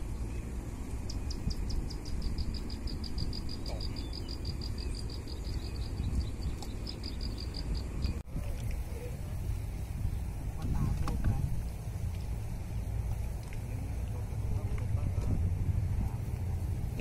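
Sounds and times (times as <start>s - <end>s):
steady low rumble: 0.0s - 17.0s
insect chirping high and fast: 1.0s - 8.2s.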